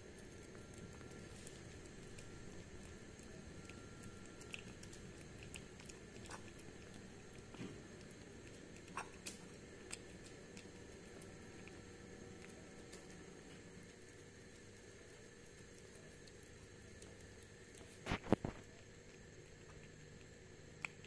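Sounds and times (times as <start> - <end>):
kitten chewing food: 0.0 - 21.0.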